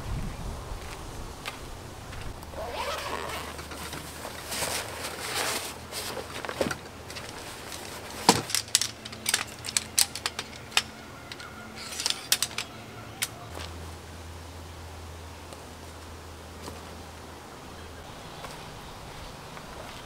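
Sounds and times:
small hard objects clicking: 8.4 - 13.3.

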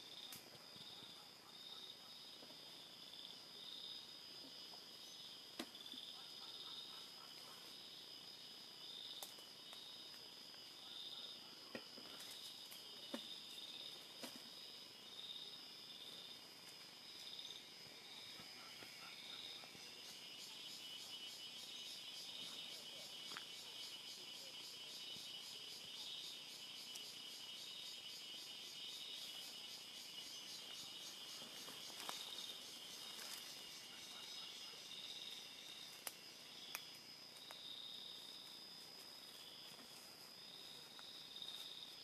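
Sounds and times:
insect chorus: 0.0 - 42.0
pulsing insect call: 0.0 - 42.0
faint sharp clicks: 36.0 - 37.6.

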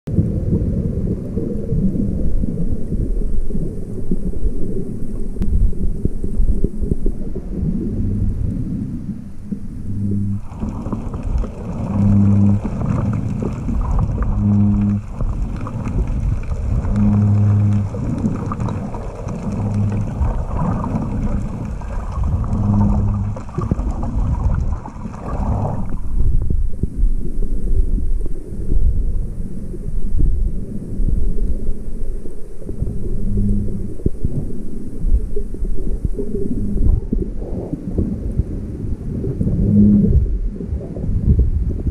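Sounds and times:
underwater rumble and sloshing: 0.1 - 41.9
short low hums: 7.7 - 26.2.

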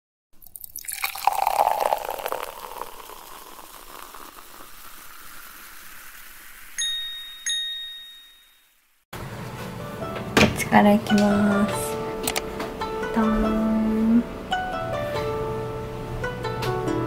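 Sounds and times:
bright chime tings: 6.8 - 8.8.

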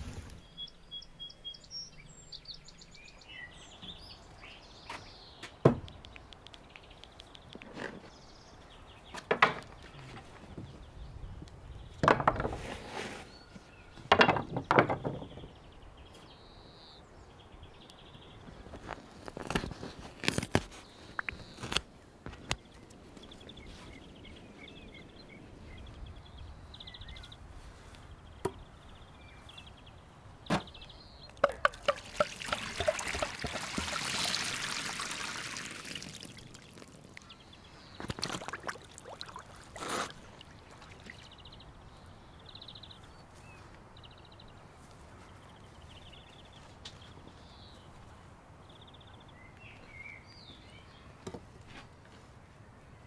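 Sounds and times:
sharp clicks and knocks: 31.3 - 33.3
liquid pouring hiss: 31.6 - 37.2.

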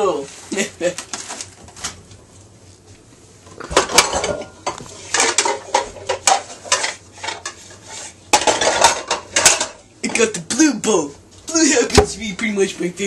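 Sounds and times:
plastic dishes clattering: 3.6 - 7.6, 8.3 - 9.8.

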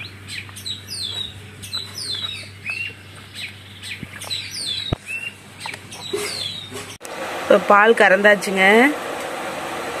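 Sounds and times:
small birds chirping: 0.0 - 7.0.

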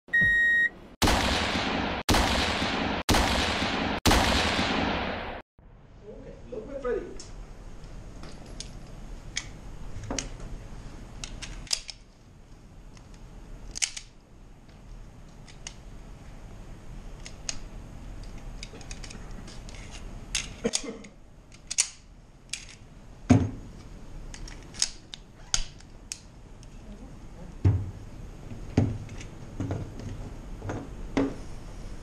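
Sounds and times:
pistol handling clicks: 11.2 - 12.1, 12.9 - 14.2, 21.5 - 22.8, 24.3 - 26.3.

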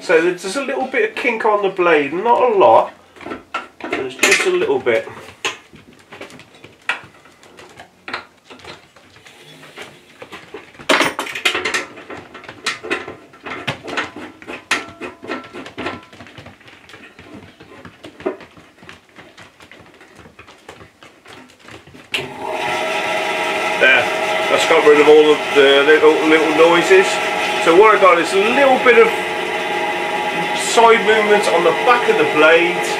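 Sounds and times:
metallic clicks and knocks: 10.8 - 16.4
bandsaw running with steady hum: 22.2 - 32.9.

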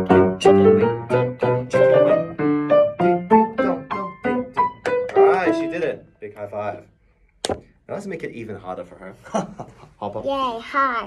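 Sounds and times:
piano notes: 0.0 - 6.8.

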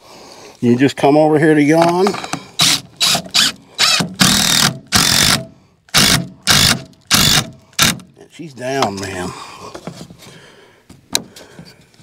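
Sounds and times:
impact driver hammering screw into wood: 2.6 - 8.1.

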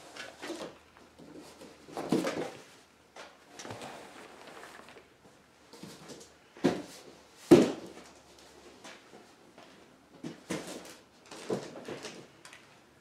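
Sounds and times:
rustling: 3.5 - 5.1.

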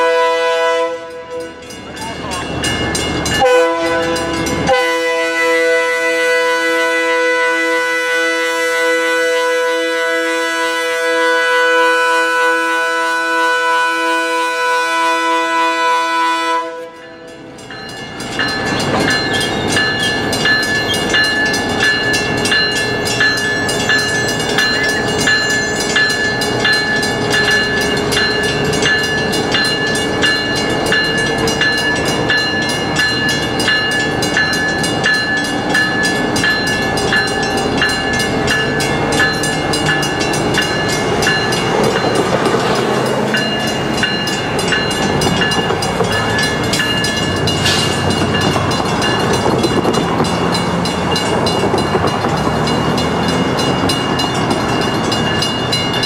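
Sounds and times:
locomotive air horn blast: 0.0 - 1.4, 3.4 - 17.0
train rumble and clatter: 0.0 - 56.0.

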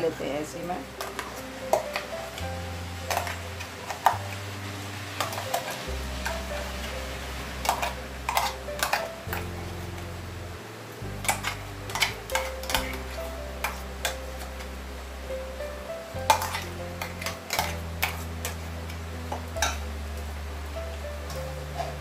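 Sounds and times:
background music with bass line: 0.0 - 22.0
metal spoon clinking on steel: 16.3 - 18.6.

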